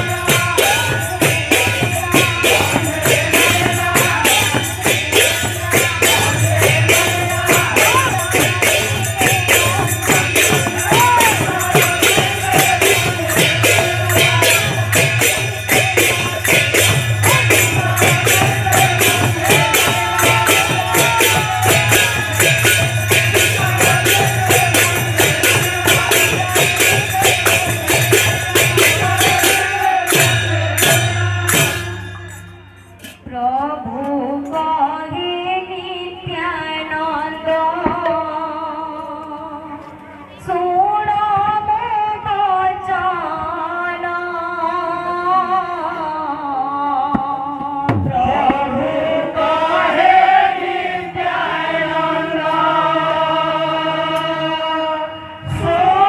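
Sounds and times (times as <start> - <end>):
brass hand cymbals: 0.0 - 33.2
barrel drums: 0.0 - 33.4.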